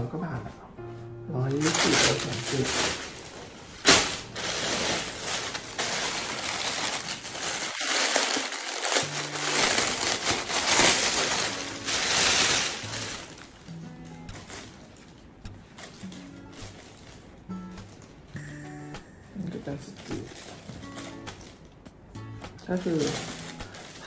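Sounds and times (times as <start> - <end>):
plastic bags rustling and crinkling: 1.4 - 18.4, 19.4 - 21.8, 22.6 - 24.0.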